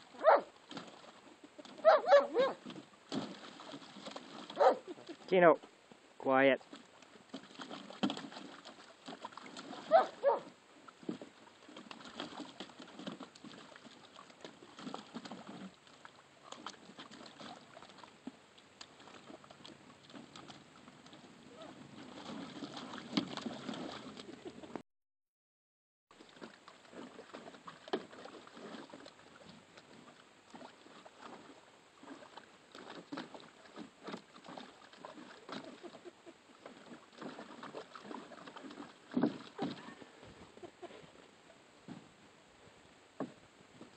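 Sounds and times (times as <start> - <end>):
puppies splashing in water: 0.0 - 5.3, 6.6 - 24.8, 26.1 - 41.0.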